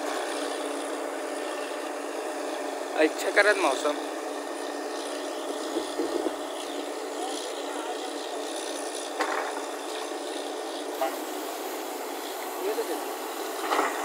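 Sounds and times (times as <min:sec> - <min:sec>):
drilling rig running: 0:00.0 - 0:14.0.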